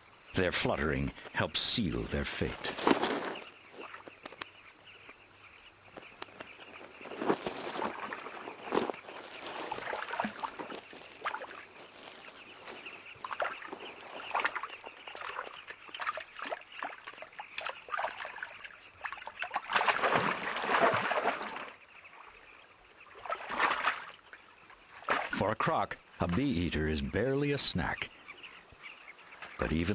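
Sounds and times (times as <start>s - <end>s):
water splashing and sloshing: 2.7s - 4.4s, 6.4s - 26.5s
thrashing splashes: 7.4s - 11.7s, 13.2s - 21.8s, 23.1s - 24.2s, 24.9s - 25.4s.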